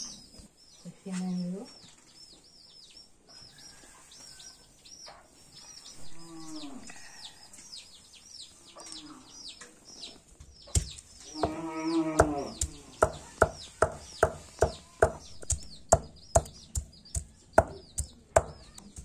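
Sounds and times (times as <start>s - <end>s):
bird chirping: 0.0s - 19.0s
stone pounding on stone slab: 10.8s - 11.6s, 12.2s - 19.0s.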